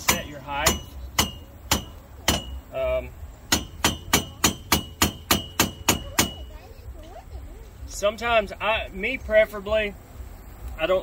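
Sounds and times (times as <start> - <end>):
mallet striking metal: 0.0 - 2.7, 3.5 - 6.5.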